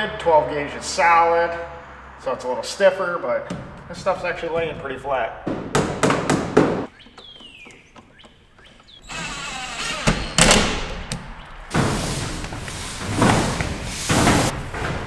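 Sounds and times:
cordless drill driving screws: 9.0s - 10.7s
cable scraping along metal wall: 11.7s - 15.0s.

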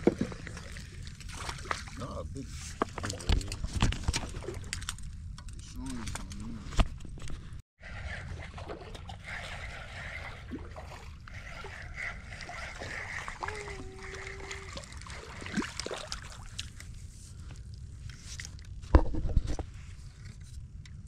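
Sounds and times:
water splashing and dripping: 0.0s - 2.0s, 10.5s - 16.9s
wind rumbling on microphone: 2.7s - 21.0s.

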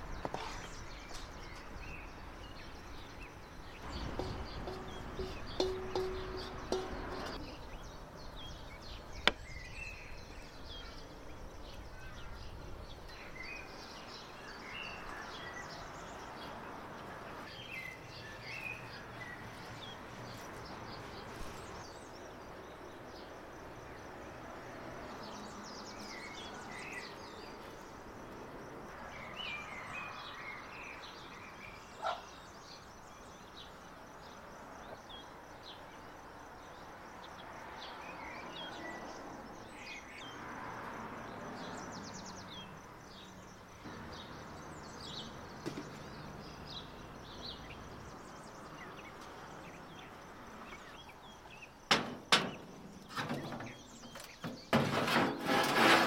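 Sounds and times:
small birds chirping: 0.0s - 24.1s, 29.2s - 40.4s, 41.2s - 54.8s
sharp knock: 3.9s - 7.4s.

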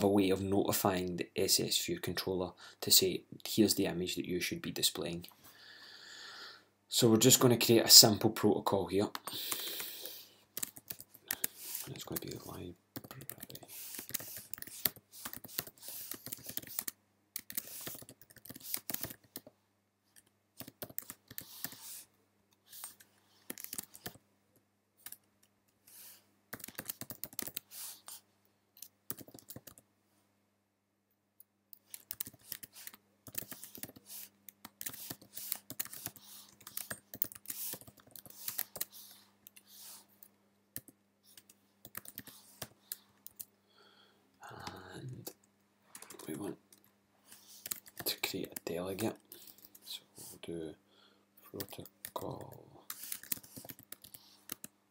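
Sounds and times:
typing on keyboard: 10.6s - 12.3s, 13.0s - 19.5s, 20.2s - 21.8s, 23.4s - 24.2s, 26.5s - 27.7s, 28.8s - 29.8s, 31.7s - 38.9s, 40.8s - 43.5s, 51.6s - 54.7s.

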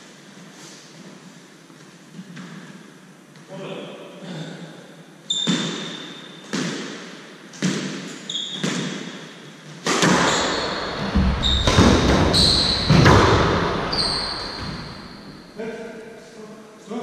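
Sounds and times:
sneakers squeaking on wooden floor: 5.3s - 6.8s, 7.6s - 15.6s
squash ball hits: 5.5s - 9.2s, 9.8s - 15.2s.

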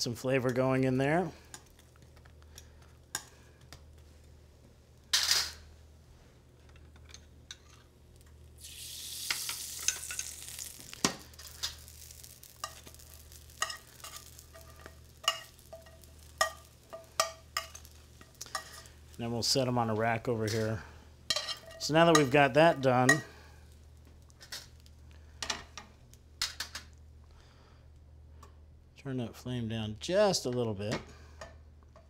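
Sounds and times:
croutons sizzling in butter: 7.0s - 27.0s
metal tongs tapping a pan: 9.2s - 18.9s, 21.3s - 23.3s.

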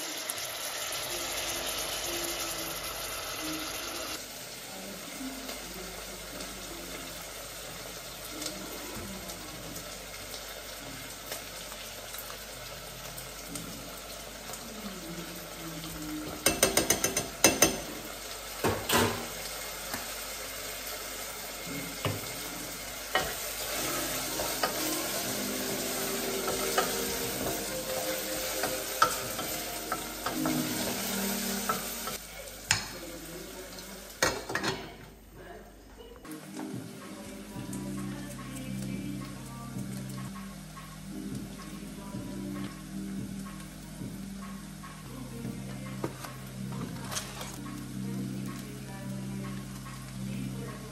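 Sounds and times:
vegetables sizzling in a pot: 0.0s - 35.4s, 36.3s - 50.9s
utensils knocking on pot: 16.3s - 18.0s.

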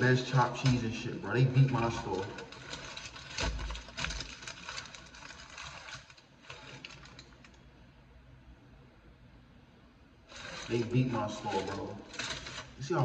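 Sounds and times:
foil wrapper crinkling: 1.5s - 7.6s, 10.3s - 13.0s.

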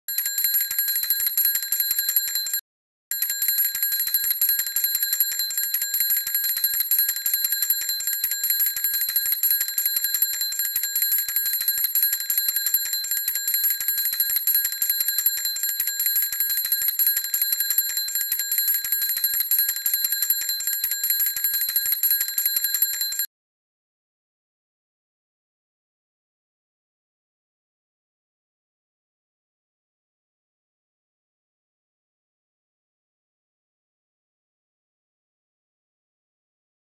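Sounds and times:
toy bell trilling: 0.1s - 23.3s.

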